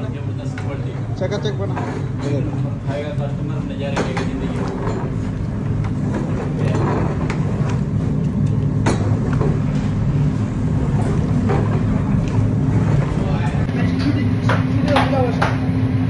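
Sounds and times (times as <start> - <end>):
kitchen equipment rumbling: 0.0 - 15.5.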